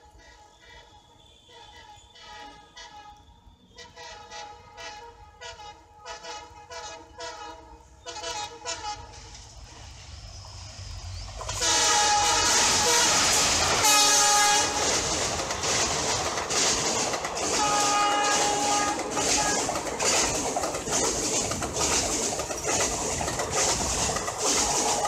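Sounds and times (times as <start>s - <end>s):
train horn toots: 0.0s - 9.5s, 11.4s - 15.1s, 17.4s - 19.9s
train passing rush: 0.0s - 25.0s
wheels clacking over rails: 11.4s - 25.0s.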